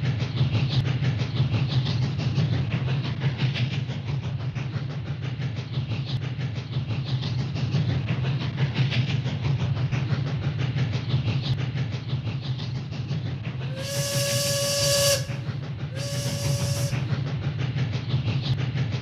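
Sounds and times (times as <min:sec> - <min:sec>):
steam train chugging: 0:00.0 - 0:19.0
steam whistle blasts: 0:13.6 - 0:17.2
hissing steam: 0:13.7 - 0:17.1.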